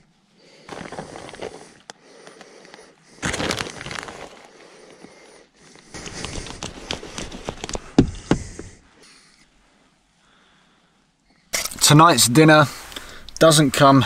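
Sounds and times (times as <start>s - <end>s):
plastic packet crinkling: 3.2s - 4.5s, 5.8s - 7.9s.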